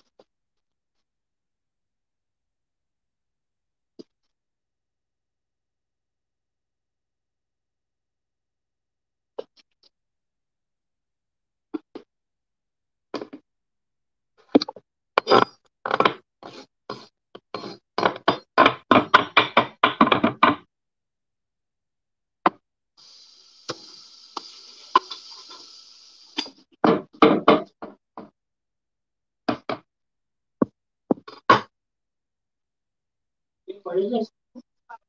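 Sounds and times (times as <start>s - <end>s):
steady hiss: 23.0s - 26.7s.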